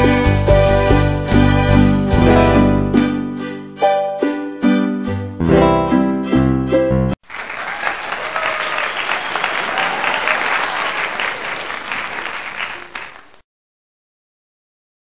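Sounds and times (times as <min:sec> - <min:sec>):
audience applause: 0:07.2 - 0:13.4.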